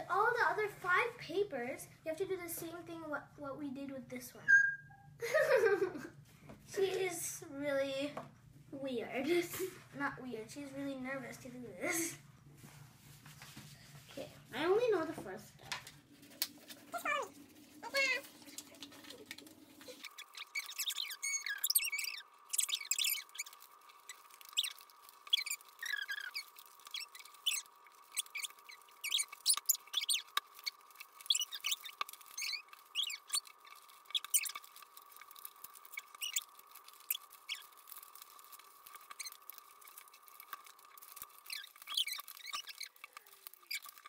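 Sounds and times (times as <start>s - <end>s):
paper folding and crinkling: 12.6s - 44.0s.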